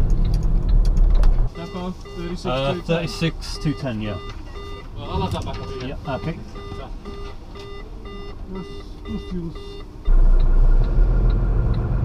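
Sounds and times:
electronic warning beeps: 1.5s - 10.6s
hazard light relay ticking: 1.6s - 11.9s.

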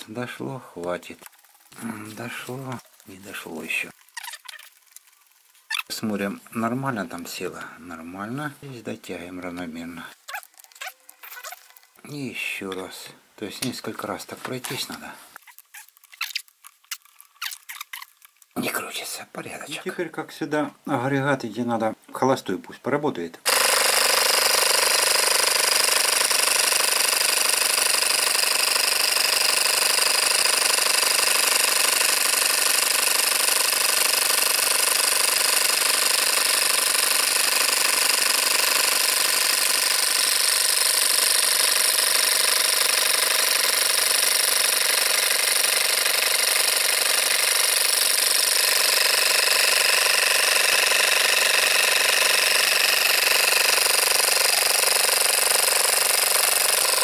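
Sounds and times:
air compressor motor running: 23.5s - 57.0s.

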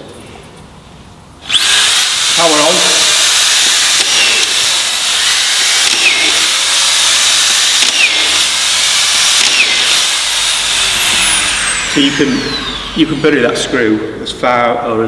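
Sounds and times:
screws driven into wood: 1.4s - 13.3s
screwdriver motor whining: 1.4s - 13.8s.

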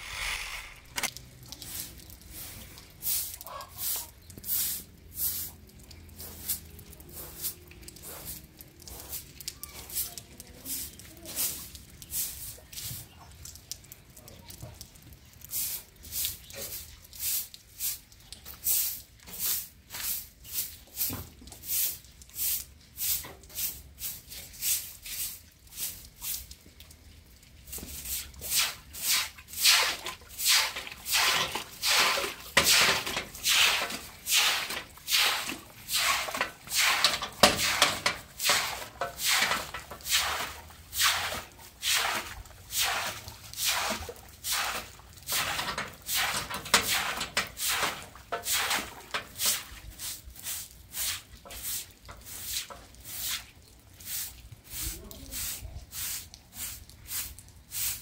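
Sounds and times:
broom sweeping: 0.0s - 1.1s, 27.8s - 58.0s.

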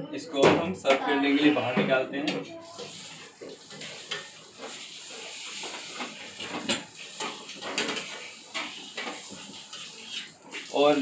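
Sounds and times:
metal spatula scraping frying pan: 2.6s - 10.8s.

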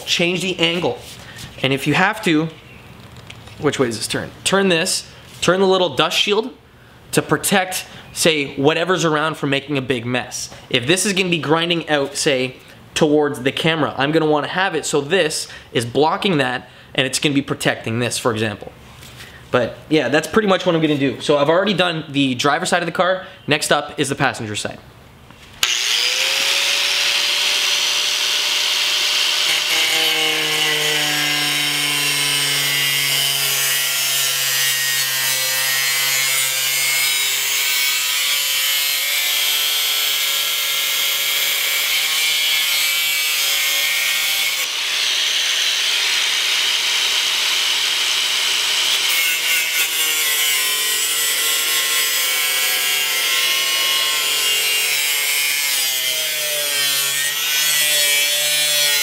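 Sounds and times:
angle grinder cutting steel: 25.6s - 59.0s.

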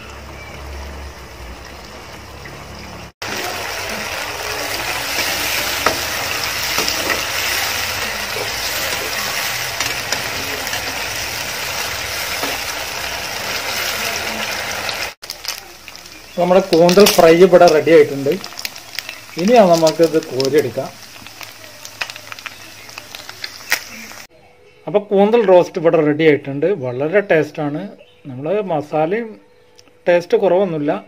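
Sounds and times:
squid sizzling in hot oil: 0.2s - 24.3s
metal spoon stirring in pan: 4.2s - 14.0s.

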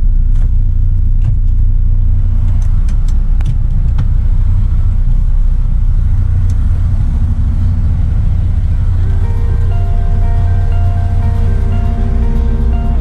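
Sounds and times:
diesel truck engine idling: 4.2s - 13.0s.

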